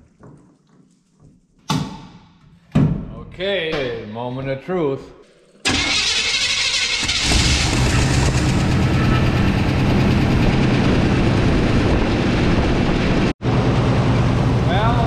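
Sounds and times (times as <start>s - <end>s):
truck engine cranking: 5.6s - 10.6s.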